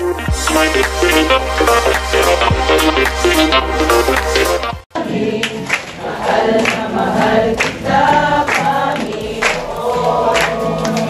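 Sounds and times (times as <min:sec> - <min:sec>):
congregation singing worship song: 0:04.9 - 0:11.0.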